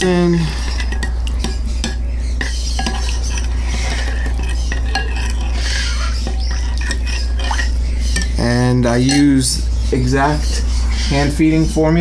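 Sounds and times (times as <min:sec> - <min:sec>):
spoon scraping glass bowl: 0:00.0 - 0:09.6
low hum: 0:00.0 - 0:12.0
spoon clinking on glass: 0:00.5 - 0:08.4, 0:09.0 - 0:09.4.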